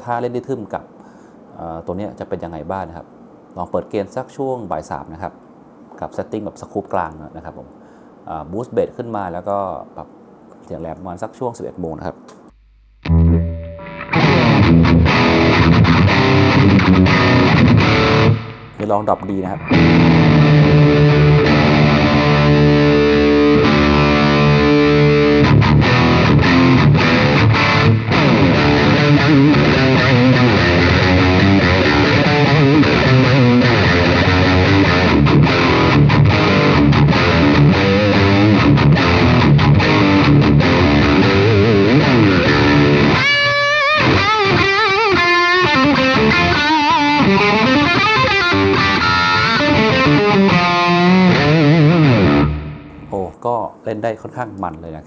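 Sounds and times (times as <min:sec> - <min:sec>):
distorted electric guitar riffs: 0:12.5 - 0:53.2.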